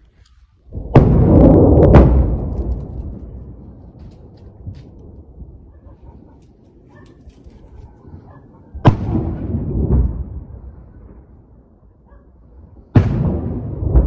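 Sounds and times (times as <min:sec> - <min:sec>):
explosions with low rumble: 0:00.7 - 0:05.8, 0:08.2 - 0:14.0.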